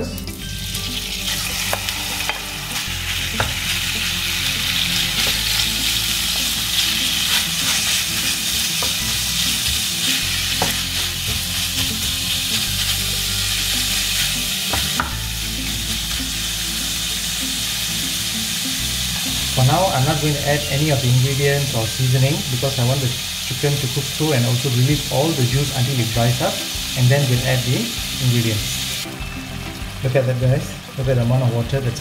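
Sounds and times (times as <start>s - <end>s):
meat sizzling in a pan: 0.3s - 32.0s.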